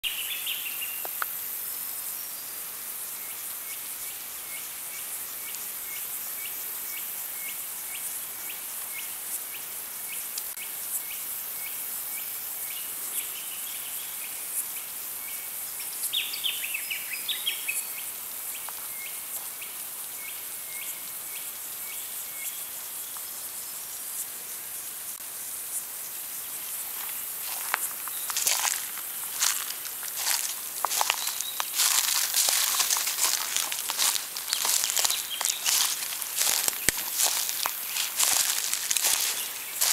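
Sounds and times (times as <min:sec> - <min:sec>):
insects droning: 0:00.0 - 0:39.9
footsteps on leaf litter: 0:26.8 - 0:39.9
bird calls: 0:28.0 - 0:39.9.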